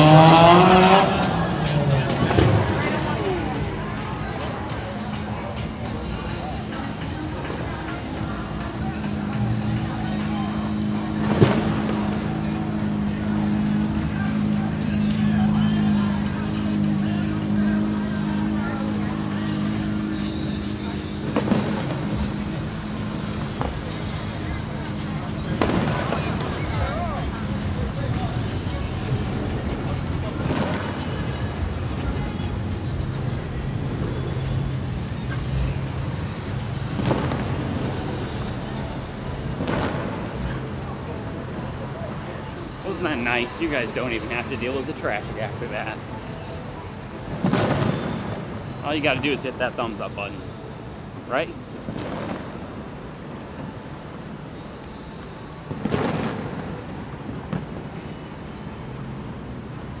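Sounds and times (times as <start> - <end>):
vehicle engine hum: 0.0 - 60.0
distant fireworks booming: 11.2 - 12.3, 21.2 - 27.7, 30.4 - 32.2, 36.4 - 38.6, 39.4 - 41.3, 47.3 - 49.9, 51.8 - 53.8, 55.6 - 58.7.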